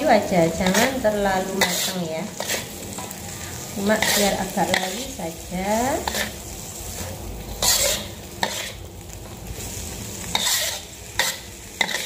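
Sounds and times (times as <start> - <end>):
frying sizzle: 0.0 - 12.0
metal spatula scraping wok: 0.1 - 8.9, 9.6 - 12.0.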